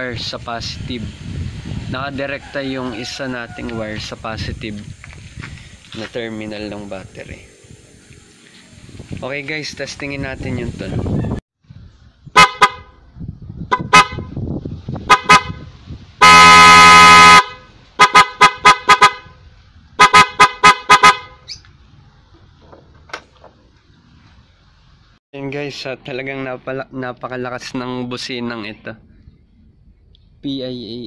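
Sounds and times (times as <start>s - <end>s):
loud car horn toots: 12.4s - 13.0s, 13.7s - 14.4s, 15.0s - 19.4s, 20.0s - 21.5s.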